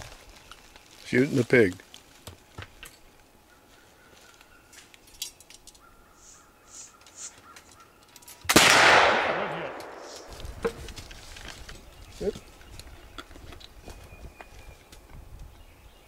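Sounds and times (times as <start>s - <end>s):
rifle shot: 8.5s - 10.3s.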